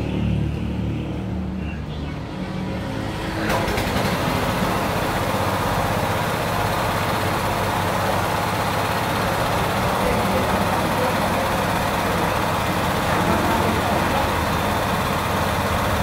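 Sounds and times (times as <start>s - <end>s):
small petrol engine running: 2.6s - 16.0s
pressure washer hissing rush: 3.6s - 16.0s.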